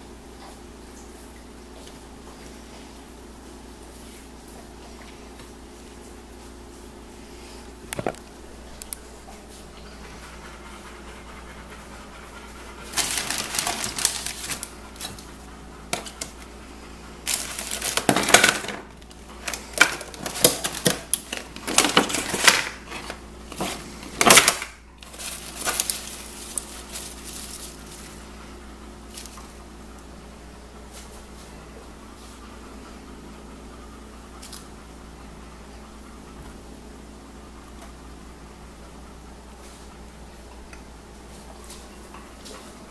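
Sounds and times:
faint steady hum: 0:00.0 - 0:42.9
plastic packaging crinkling: 0:12.9 - 0:15.2, 0:17.2 - 0:28.2, 0:29.1 - 0:29.5.

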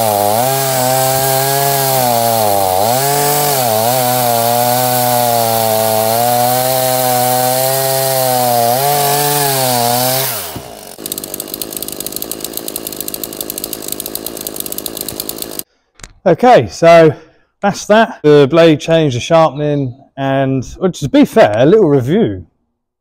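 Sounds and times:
chainsaw running: 0:00.0 - 0:15.7
fast even clicking: 0:11.0 - 0:15.6.

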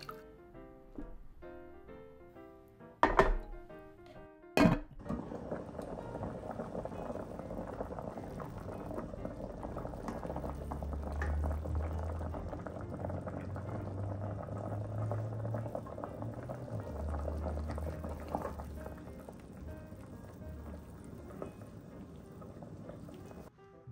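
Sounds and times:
broth boiling and bubbling: 0:04.8 - 0:23.5.

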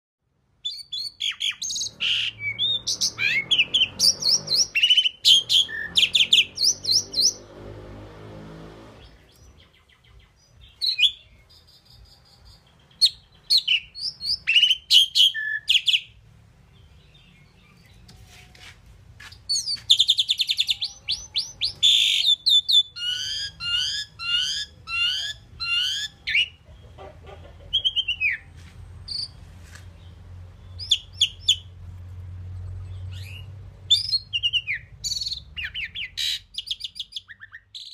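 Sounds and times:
starling singing: 0:00.6 - 0:07.5, 0:09.0 - 0:16.2, 0:19.4 - 0:28.5, 0:30.0 - 0:31.7, 0:32.8 - 0:37.9.

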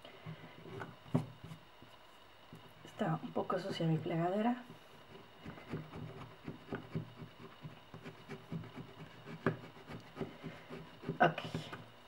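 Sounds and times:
bone folder scraping paper: 0:05.4 - 0:11.8.

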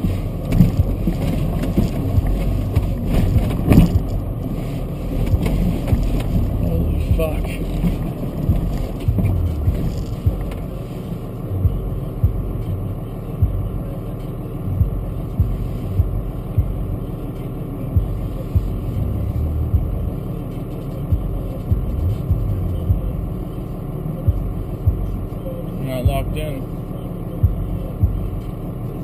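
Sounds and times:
vehicle thumping over rough track: 0:00.0 - 0:10.7
low engine rumble: 0:00.0 - 0:29.0.

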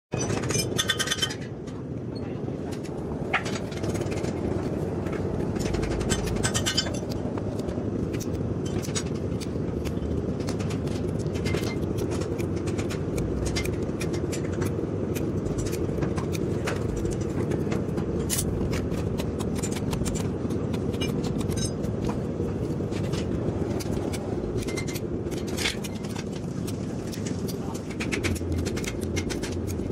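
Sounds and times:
steady low rumble: 0:00.2 - 0:29.9
hoof knife scraping and clipping: 0:05.5 - 0:29.9.

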